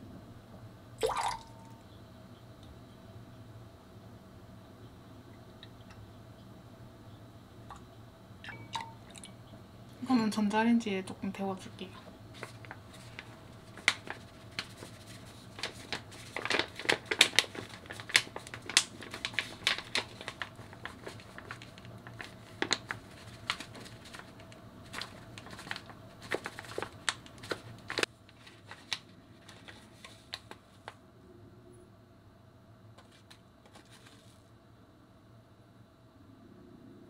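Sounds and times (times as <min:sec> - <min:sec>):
paper bag crinkling: 0:12.3 - 0:31.0, 0:33.0 - 0:34.4.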